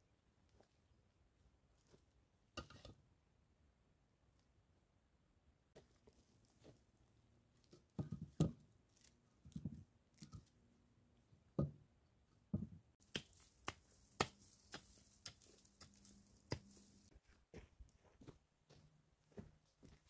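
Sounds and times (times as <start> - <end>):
clicks and crunches on stony ground: 13.1 - 17.2.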